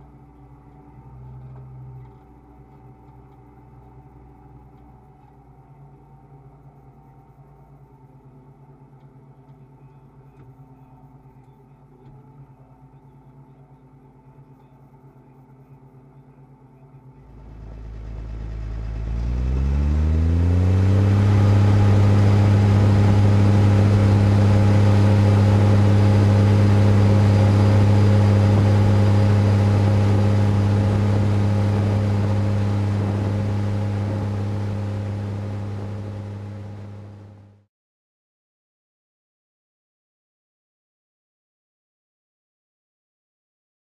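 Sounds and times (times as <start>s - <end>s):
tractor diesel engine revving: 17.4s - 37.5s.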